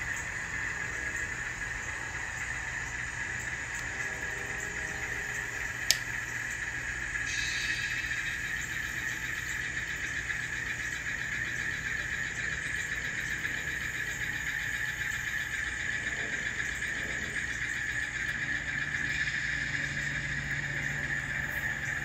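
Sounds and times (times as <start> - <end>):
diesel engine sound from small speaker: 0.0 - 22.0.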